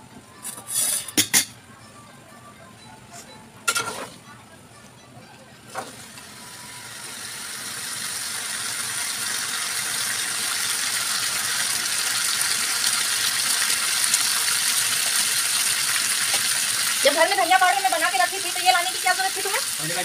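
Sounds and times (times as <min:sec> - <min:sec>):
food sizzling in oil: 0:05.9 - 0:20.0.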